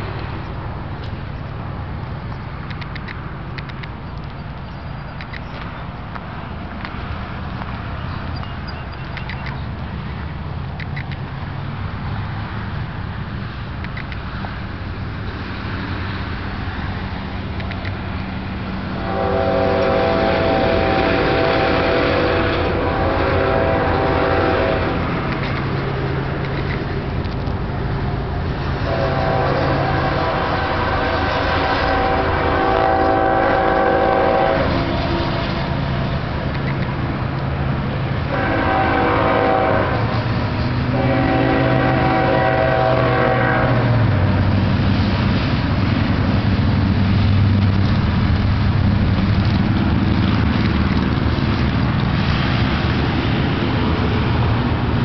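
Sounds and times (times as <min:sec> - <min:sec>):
train horn blasts: 0:19.0 - 0:25.5, 0:28.8 - 0:36.0, 0:38.3 - 0:44.3.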